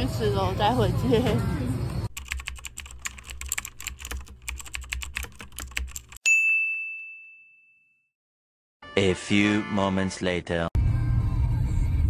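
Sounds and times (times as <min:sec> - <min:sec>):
bright bell ding: 0:06.2 - 0:08.0.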